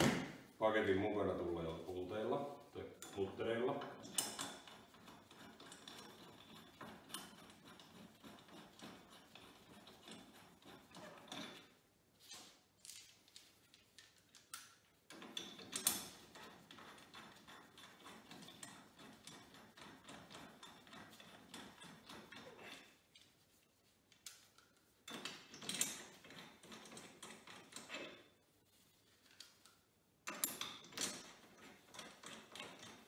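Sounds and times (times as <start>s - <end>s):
hand ratchet clicking: 4.0s - 11.6s, 14.3s - 22.6s, 24.2s - 28.1s, 30.3s - 33.0s.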